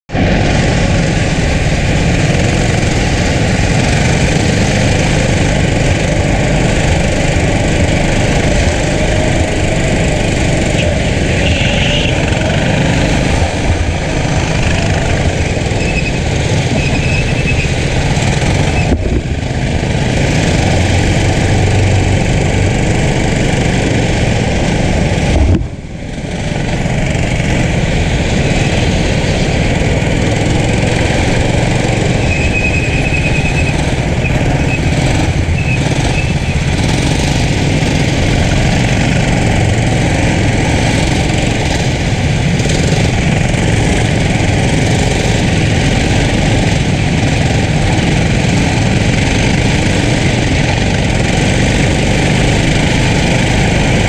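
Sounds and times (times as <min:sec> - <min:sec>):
go-kart engine running hard: 0:00.1 - 0:54.0
other karts nearby: 0:00.1 - 0:54.0
wind noise: 0:00.1 - 0:54.0.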